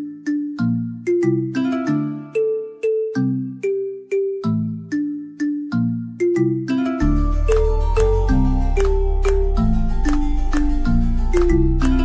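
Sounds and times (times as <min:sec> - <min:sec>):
melody of struck notes: 0:00.0 - 0:12.0
low bass notes: 0:07.0 - 0:12.0.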